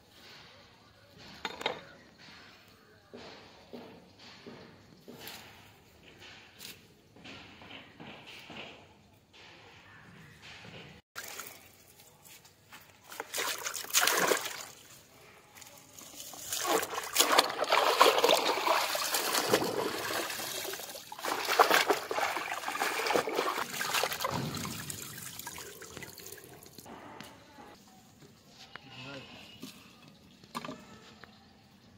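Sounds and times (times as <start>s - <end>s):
water pouring and splashing: 11.2s - 12.2s, 12.9s - 26.9s.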